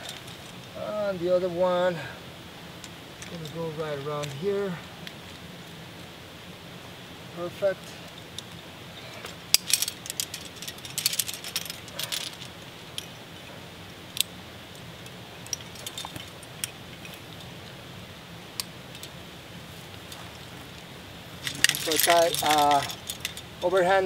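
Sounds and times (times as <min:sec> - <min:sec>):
metal climbing gear clinking: 0:00.0 - 0:00.8, 0:08.0 - 0:13.6, 0:14.2 - 0:17.8, 0:21.4 - 0:24.0.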